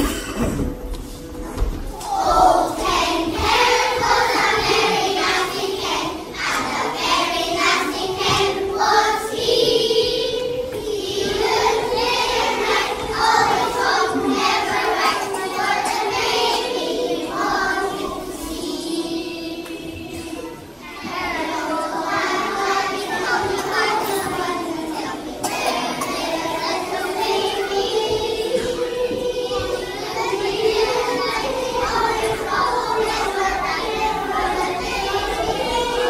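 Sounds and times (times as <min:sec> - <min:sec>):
children singing in unison: 0:00.0 - 0:36.0.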